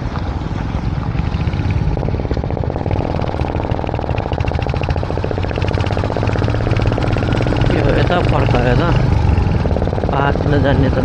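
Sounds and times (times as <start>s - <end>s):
motorcycle exhaust popping: 0.0s - 11.0s.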